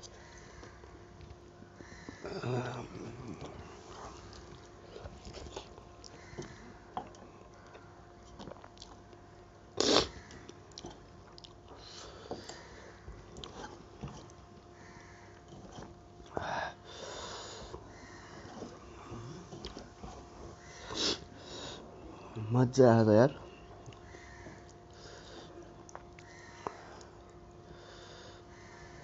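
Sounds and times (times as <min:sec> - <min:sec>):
faint steady hum: 0:00.0 - 0:29.0
soft chewing and mouth clicks: 0:02.1 - 0:09.3, 0:10.2 - 0:16.4, 0:18.4 - 0:20.3, 0:23.4 - 0:27.5
loud breath through nose: 0:20.8 - 0:21.8.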